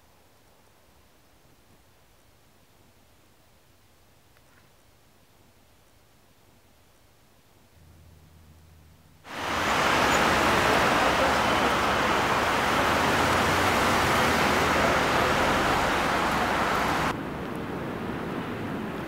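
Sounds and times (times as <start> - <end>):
street traffic: 7.8 - 17.2
loud rushing noise: 9.3 - 17.2.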